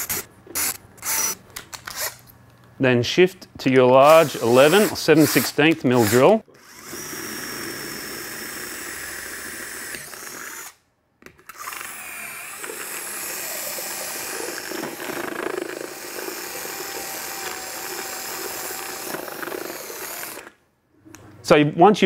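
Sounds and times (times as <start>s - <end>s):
cordless drill boring through helmet: 0.0s - 1.4s, 4.0s - 10.8s, 11.5s - 20.6s.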